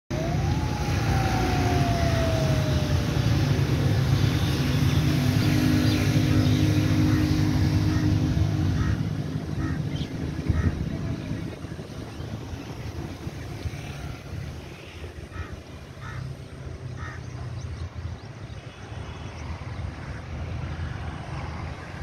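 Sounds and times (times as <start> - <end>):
wind on microphone: 0.1 - 16.0
motor vehicle passing: 0.1 - 17.8.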